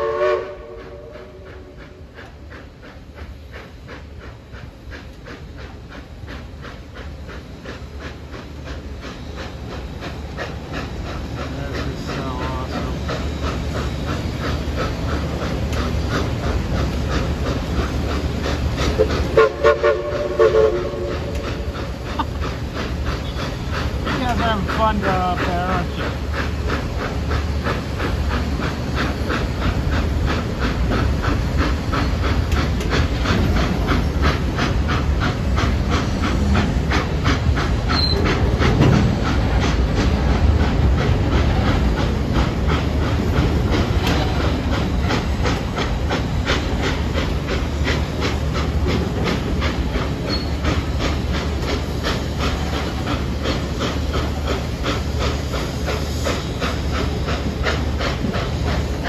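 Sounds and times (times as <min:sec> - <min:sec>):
steam locomotive chuffing: 0:00.0 - 0:59.0
train rolling on rails: 0:00.0 - 0:59.0.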